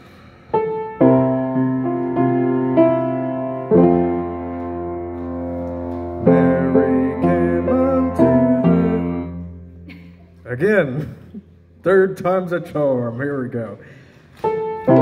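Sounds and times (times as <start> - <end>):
slow piano chords: 0.0 - 10.6, 14.4 - 15.0.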